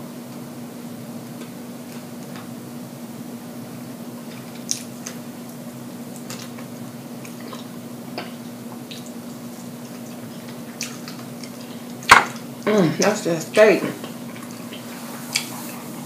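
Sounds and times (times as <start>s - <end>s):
steady low hum: 0.0s - 16.0s
person chewing with wet smacks: 4.2s - 13.1s, 14.0s - 16.0s
sucking food off fingers: 14.4s - 16.0s.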